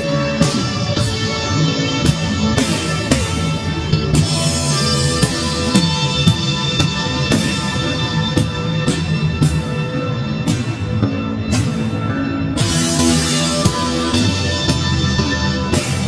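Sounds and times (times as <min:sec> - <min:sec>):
drum kit beat: 0:00.0 - 0:16.0
sustained chords: 0:00.0 - 0:16.0.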